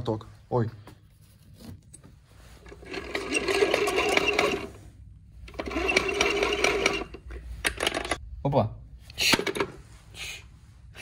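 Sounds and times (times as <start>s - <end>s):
hand-cranked gears whirring: 2.6s - 4.8s, 5.5s - 8.2s.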